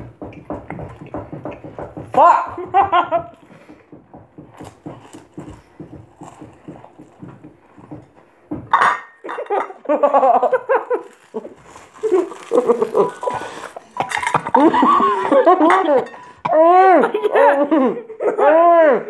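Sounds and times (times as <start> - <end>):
crackers being chewed: 4.5 - 7.9, 10.5 - 14.6
muffled laughing: 9.9 - 19.0.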